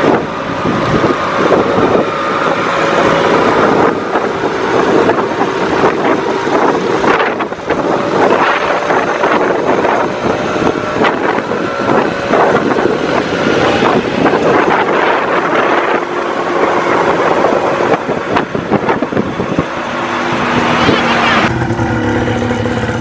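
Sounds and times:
wind rushing on microphone: 0.0s - 23.0s
motorcycle engine running: 20.2s - 23.0s.

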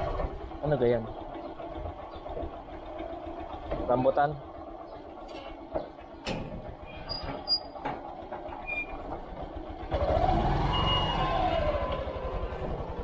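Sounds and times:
vehicle engine revving: 9.6s - 13.0s.

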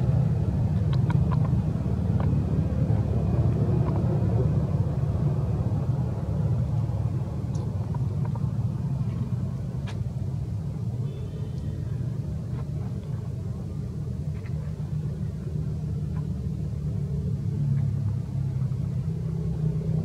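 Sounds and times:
steady low rumble: 0.0s - 20.0s
faint high chirp: 11.0s - 11.8s.

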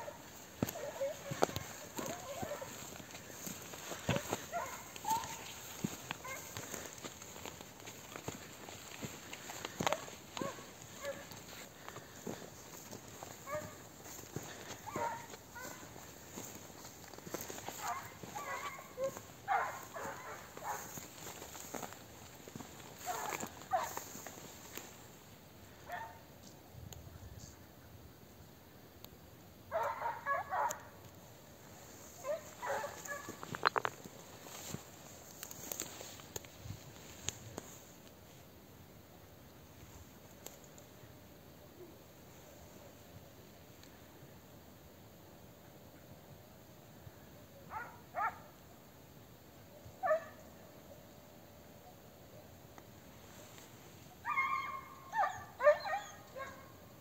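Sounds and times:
dog yelping: 0.0s - 3.0s, 3.9s - 6.8s, 14.6s - 15.8s, 17.8s - 20.9s, 32.2s - 33.4s, 54.3s - 56.7s
distant dogs barking: 0.0s - 24.8s, 29.7s - 31.0s, 31.8s - 33.8s, 47.6s - 48.5s, 50.0s - 50.5s, 54.2s - 56.9s.

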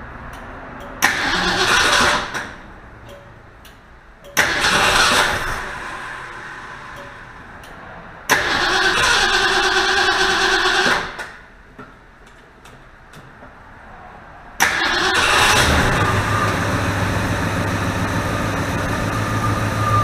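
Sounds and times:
engine cranking on starter: 1.0s - 2.6s, 4.4s - 6.4s, 8.3s - 11.3s, 14.6s - 18.2s.

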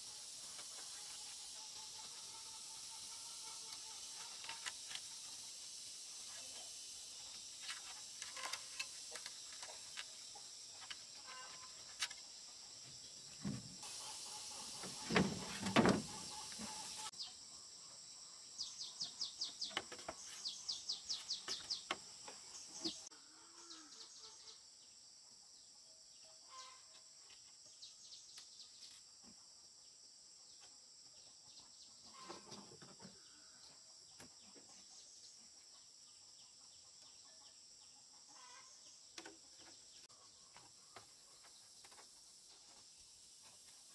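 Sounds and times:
insect drone: 0.0s - 18.7s
bamboo poles knocking and clattering: 14.8s - 16.8s.

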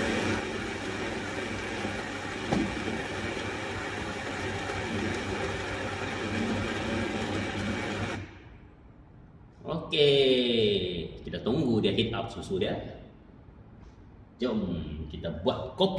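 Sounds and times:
coffee machine pump humming: 0.0s - 8.5s
brief knock: 2.5s - 2.8s.

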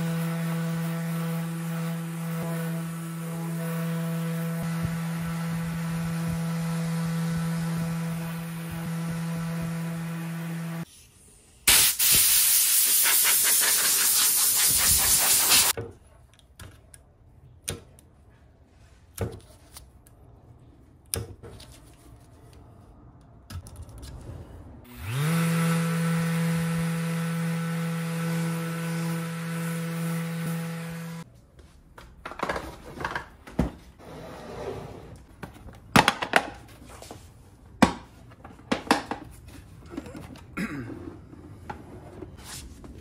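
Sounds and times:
orbital sander on wood: 0.0s - 10.8s, 24.9s - 31.2s
loud rushing hiss: 11.7s - 15.7s.

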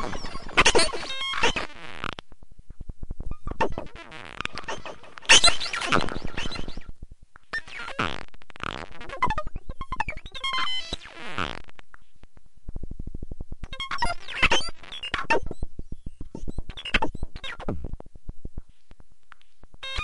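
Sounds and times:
synthesizer glitchy bleeps: 3.3s - 6.9s, 8.6s - 11.6s, 13.7s - 17.8s
fast electronic clicks: 13.6s - 18.0s.

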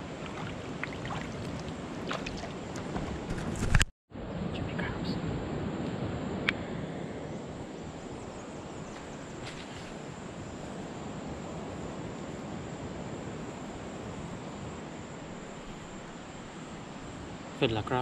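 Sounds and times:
surf on a beach: 0.0s - 3.3s, 4.2s - 18.0s
wind: 0.0s - 18.0s.

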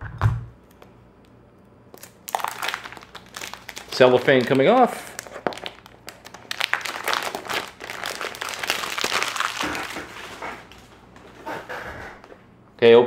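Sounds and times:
cellophane crackling: 1.9s - 11.0s.

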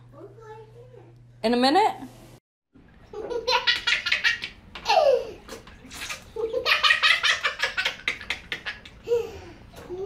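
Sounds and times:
toddler laughing: 3.2s - 5.4s.

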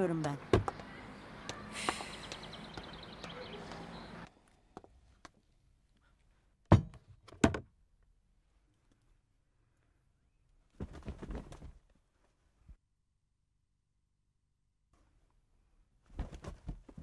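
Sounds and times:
outdoor ambience: 0.0s - 12.8s.

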